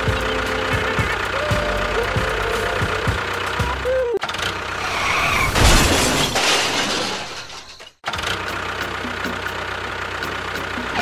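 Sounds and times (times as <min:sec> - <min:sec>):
tractor engine idling: 0:00.0 - 0:04.8, 0:08.1 - 0:11.0
loud noisy crash: 0:04.7 - 0:07.9.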